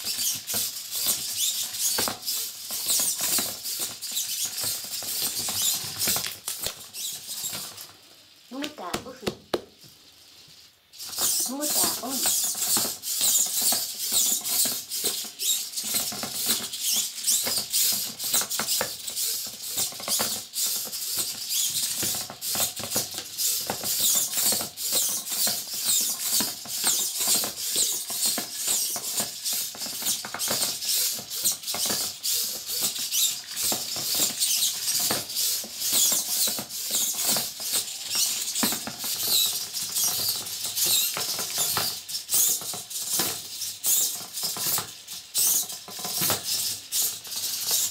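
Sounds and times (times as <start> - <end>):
plastic parts scraping on wood: 0.0 - 47.9
servo motors whirring: 11.0 - 44.6.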